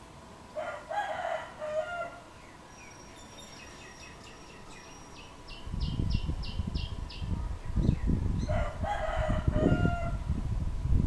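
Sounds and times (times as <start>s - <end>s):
rooster crowing: 0.6s - 2.3s, 8.4s - 10.3s
small birds chirping: 2.2s - 8.6s.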